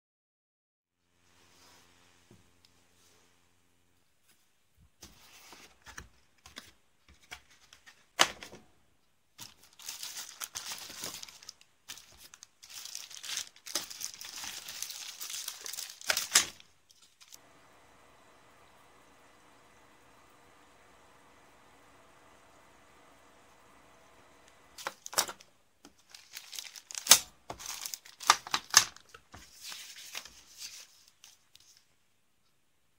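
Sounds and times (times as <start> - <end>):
cellophane crinkling and rustling: 9.4 - 17.4, 24.8 - 31.9
steady low hum: 17.4 - 24.8.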